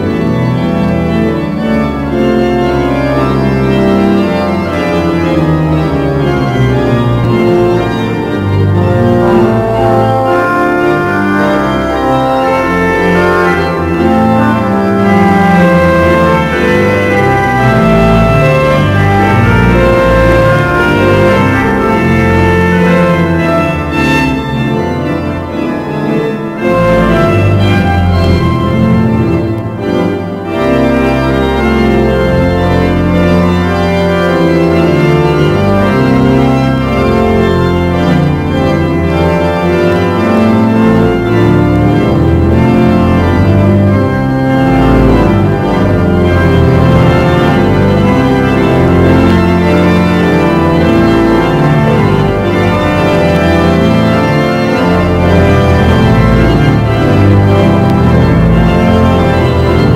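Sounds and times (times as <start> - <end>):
pipe organ playing chords: 0.0 - 59.9.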